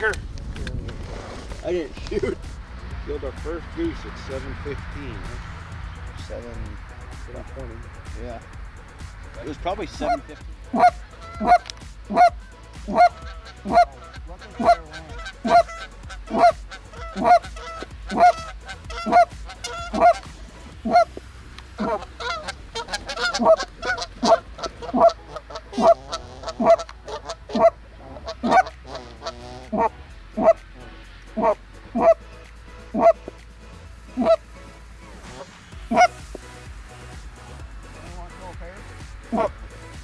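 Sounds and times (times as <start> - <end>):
geese honking: 9.0 - 33.4, 34.1 - 36.4, 38.8 - 40.0.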